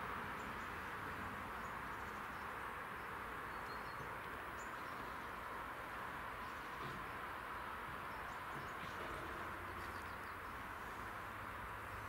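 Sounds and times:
small birds chirping: 1.5s - 5.6s, 8.0s - 11.1s.

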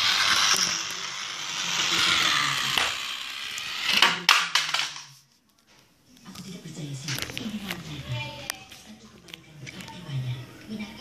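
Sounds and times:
toy train rattling hiss: 0.0s - 4.8s
toy train clattering on tile: 0.0s - 5.2s.

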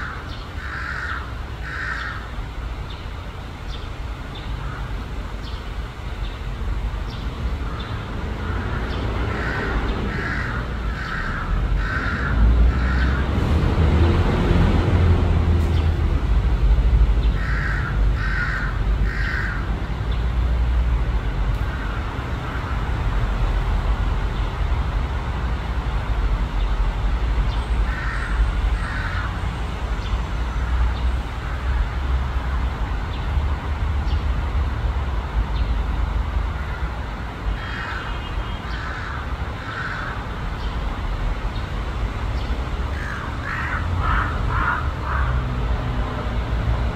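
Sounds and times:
crow cawing: 0.0s - 2.3s, 4.6s - 5.0s, 7.6s - 13.3s, 17.4s - 19.7s, 27.9s - 29.4s, 37.5s - 40.2s, 42.9s - 45.5s.

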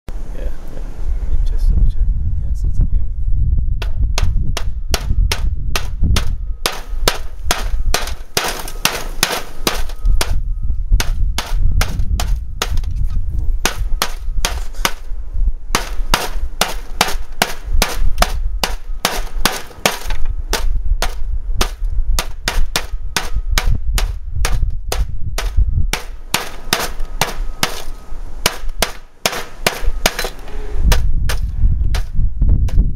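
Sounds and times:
hammer striking dry ice: 3.8s - 10.4s, 15.7s - 32.1s.

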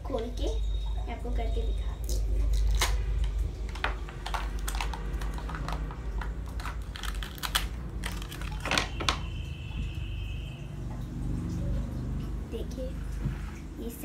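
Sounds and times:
plastic toy parts clicking: 3.7s - 8.9s.

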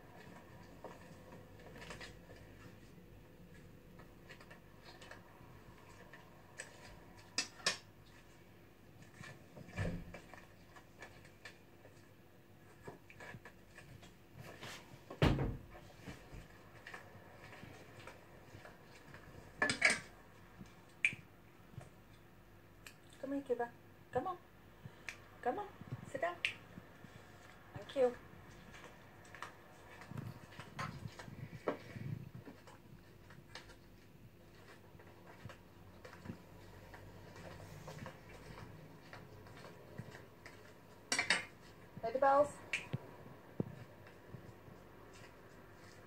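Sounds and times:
dishes knocking and clattering: 19.6s - 20.1s, 41.1s - 41.6s.

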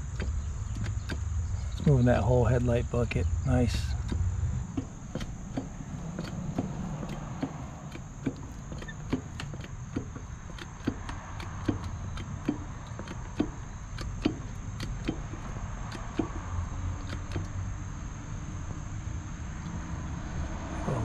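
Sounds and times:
hydraulic hand pump clicking: 0.0s - 2.0s, 3.7s - 18.1s
high insect buzz: 0.0s - 21.0s.

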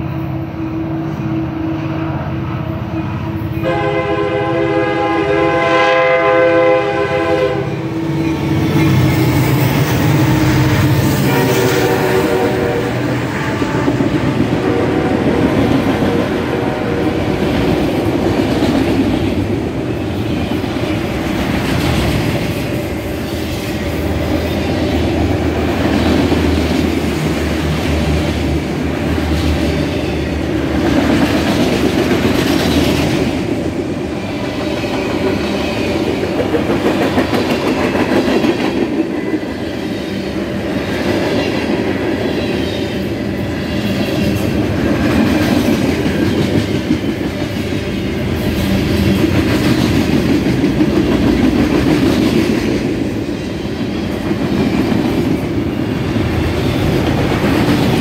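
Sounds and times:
train rumbling and clacking over rails: 0.0s - 58.0s
locomotive horn: 3.6s - 8.0s, 10.0s - 17.4s.

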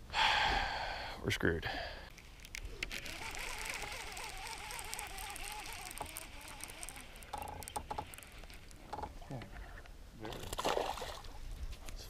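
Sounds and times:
fishing reel gears whirring: 2.1s - 9.2s.

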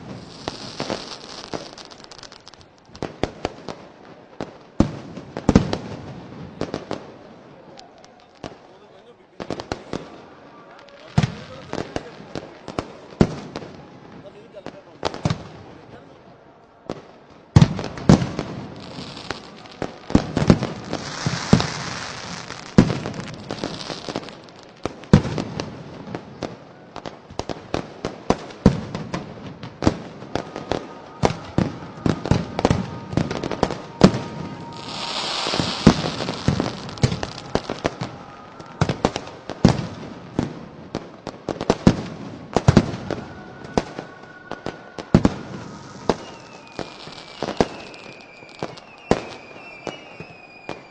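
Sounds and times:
hissing crackle: 0.0s - 3.0s, 18.6s - 25.2s, 29.8s - 40.5s
fireworks bangs and pops: 0.0s - 8.7s, 9.4s - 13.8s, 16.9s - 43.2s, 45.0s - 50.9s.

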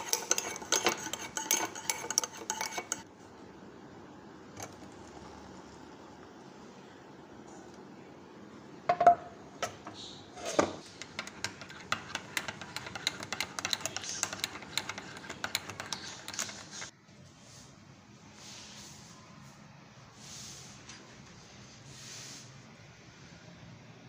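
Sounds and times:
spoon clinking in tea cup: 0.0s - 3.0s.

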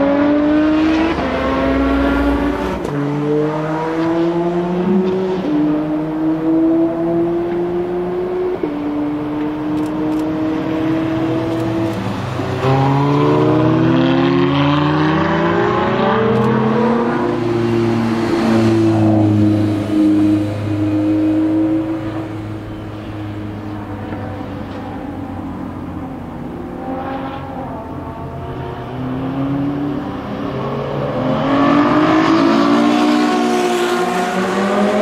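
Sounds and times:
sports car engines accelerating: 0.0s - 35.0s.

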